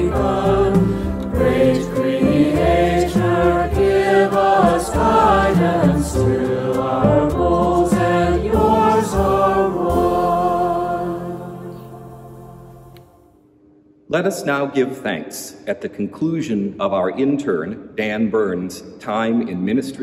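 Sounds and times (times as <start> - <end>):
drum kit: 0.0 - 11.1
choir singing a hymn: 0.0 - 13.2
piano: 0.0 - 13.4.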